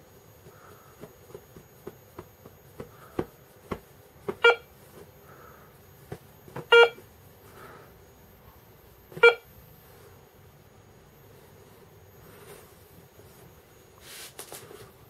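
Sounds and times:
metal detector beeps: 6.7s - 7.0s, 9.2s - 9.5s.

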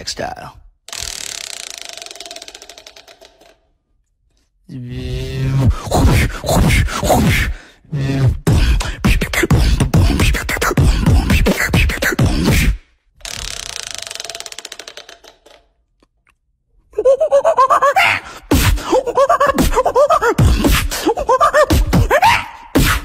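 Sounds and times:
beatboxing into a microphone: 4.8s - 12.8s, 18.5s - 23.0s.

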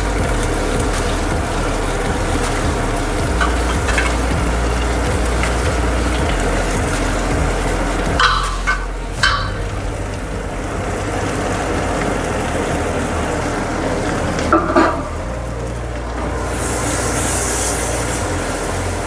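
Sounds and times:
onions sizzling in oil: 0.0s - 15.2s, 16.4s - 19.0s
steel plate clinking on rim: 8.1s - 9.7s.

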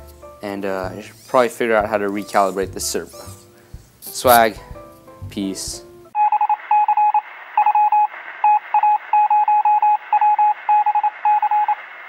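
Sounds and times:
electronic beeping: 6.2s - 11.8s.

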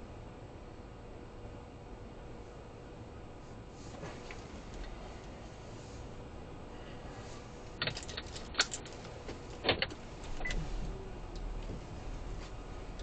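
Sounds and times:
faint low cabin hum: 0.0s - 13.0s.

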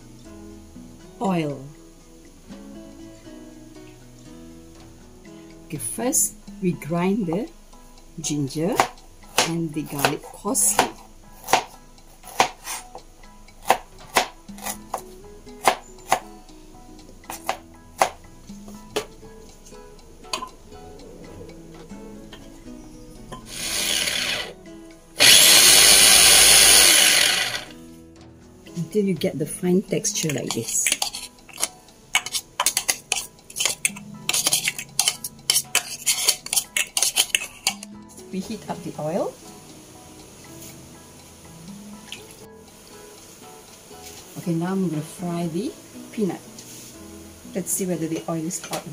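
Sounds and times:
soft background music: 0.0s - 48.9s
knife chopping on a cutting board: 8.8s - 12.8s, 13.6s - 15.0s, 15.6s - 16.2s, 17.3s - 18.2s
utensil clinking on ceramic plate: 30.2s - 37.9s.

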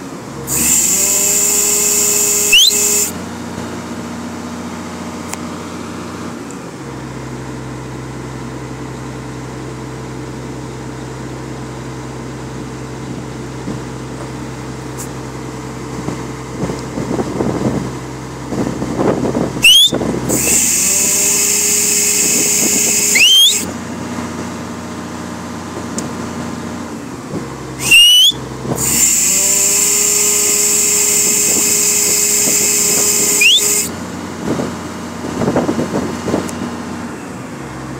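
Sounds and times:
diesel engine running: 0.0s - 37.9s
loud hydraulic hiss: 0.4s - 3.2s, 19.6s - 23.7s, 27.8s - 34.0s
short rising squeal: 0.5s - 3.2s, 19.6s - 23.7s, 27.8s - 34.0s.

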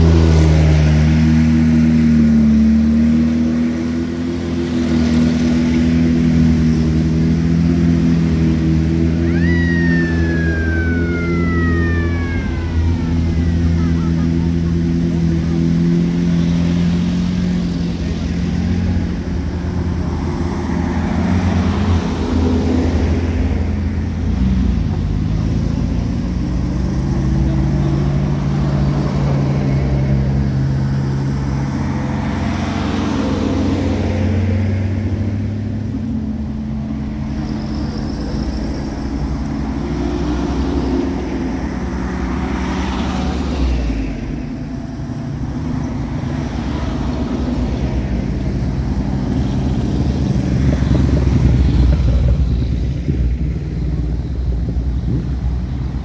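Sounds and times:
military vehicle engines passing: 0.0s - 56.0s.

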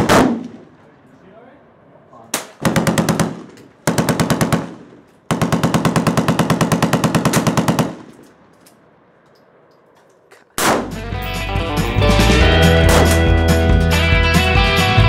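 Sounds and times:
automatic gunfire bursts: 2.6s - 8.1s.

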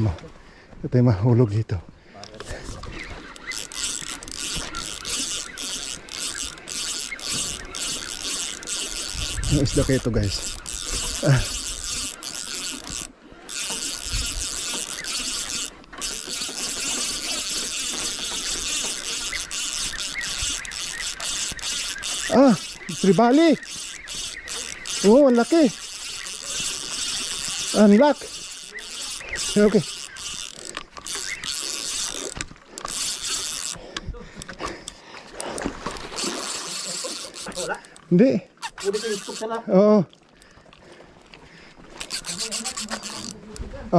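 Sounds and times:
fishing reel buzzing: 2.4s - 39.7s, 41.7s - 43.7s
fish splashing at water surface: 35.2s - 37.9s, 41.8s - 43.4s.

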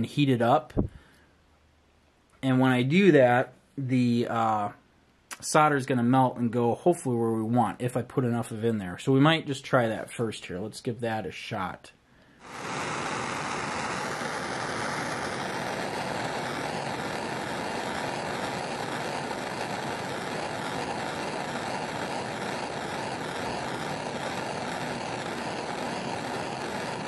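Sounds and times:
gas torch hissing: 12.4s - 27.0s.

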